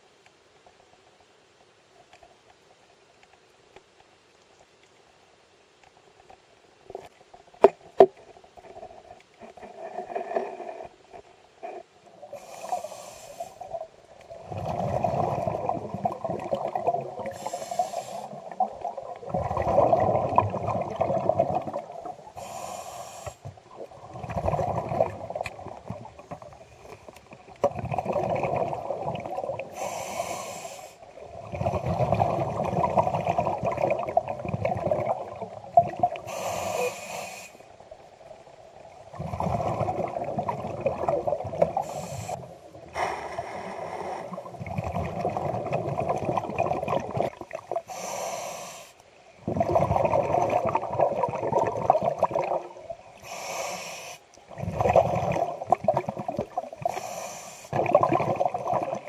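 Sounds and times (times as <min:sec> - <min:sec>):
hissing regulator inhalation: 0:12.3 - 0:13.7, 0:17.3 - 0:18.5, 0:22.4 - 0:23.5, 0:29.7 - 0:31.0, 0:36.2 - 0:37.6, 0:41.8 - 0:44.5, 0:47.9 - 0:49.0, 0:53.2 - 0:54.3, 0:56.8 - 0:57.8
bubbling exhalation underwater: 0:14.3 - 0:17.5, 0:18.4 - 0:22.2, 0:23.9 - 0:26.5, 0:27.6 - 0:29.7, 0:31.3 - 0:36.3, 0:39.1 - 0:41.9, 0:44.4 - 0:47.8, 0:49.4 - 0:53.0, 0:54.5 - 0:56.9, 0:57.7 - 0:59.0.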